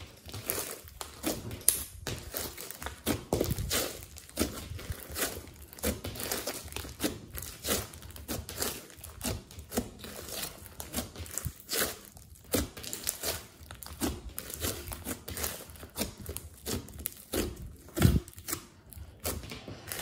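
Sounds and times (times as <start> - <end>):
slime crackling and popping: 0.0 - 20.0.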